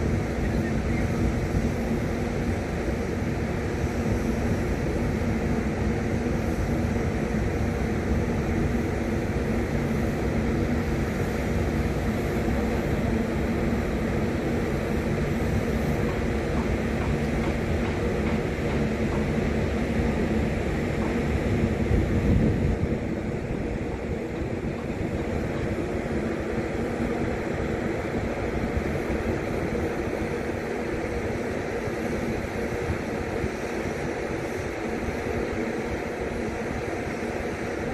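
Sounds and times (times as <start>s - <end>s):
low mechanical rumble with hum: 0.0s - 37.9s.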